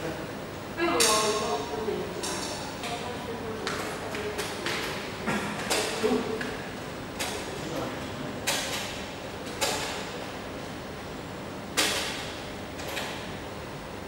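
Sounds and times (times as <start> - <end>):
steady background noise: 0.0 - 14.0
printer sharp clicks: 8.4 - 10.2, 11.7 - 13.3.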